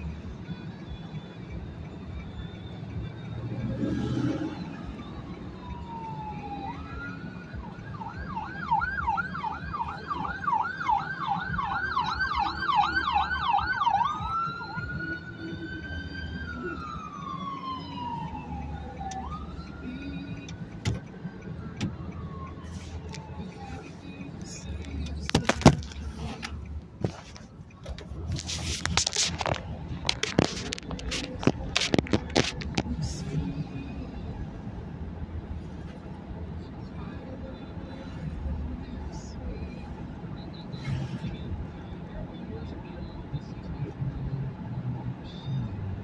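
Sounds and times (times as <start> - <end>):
ambulance siren wailing: 0.0 - 34.7.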